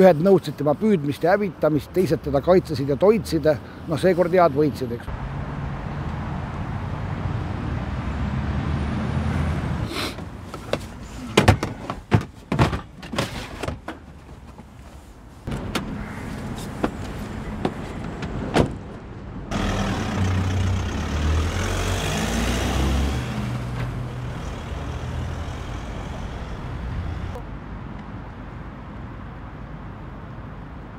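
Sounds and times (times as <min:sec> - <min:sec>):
van doors clicking and knocking: 0:10.2 - 0:14.7, 0:15.5 - 0:16.0, 0:16.7 - 0:19.0
van engine running: 0:19.5 - 0:27.4.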